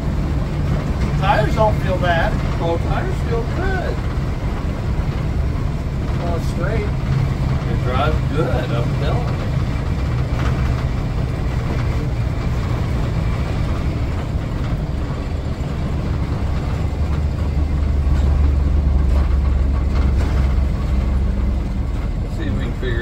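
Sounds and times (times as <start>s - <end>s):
motorhome engine drone: 0.0s - 23.0s
road and cab rattle: 0.0s - 23.0s.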